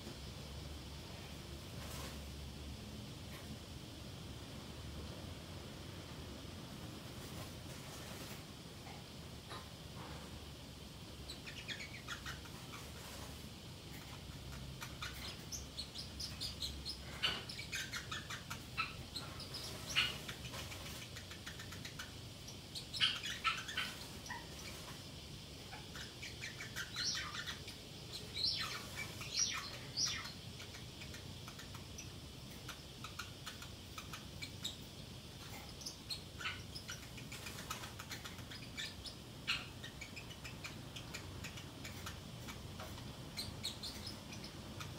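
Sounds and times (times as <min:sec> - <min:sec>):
parrotlet chirping: 0:10.6 - 0:44.9.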